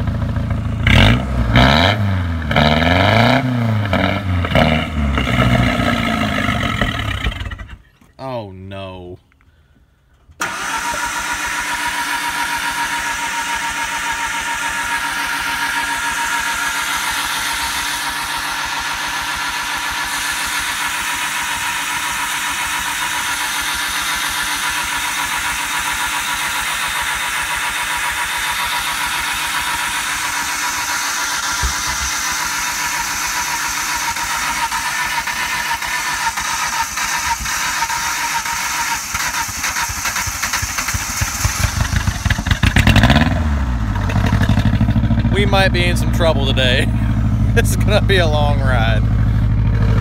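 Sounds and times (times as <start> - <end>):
pickup engine starting and idling: 10.0 - 50.0.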